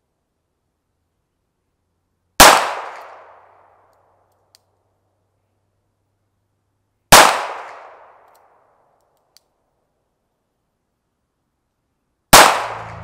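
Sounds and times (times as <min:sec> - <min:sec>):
loud gunshot: 0:02.4 - 0:03.1, 0:07.1 - 0:08.0, 0:12.3 - 0:13.0
faint click: 0:03.9 - 0:04.7
gunshot echo: 0:12.3 - 0:13.0.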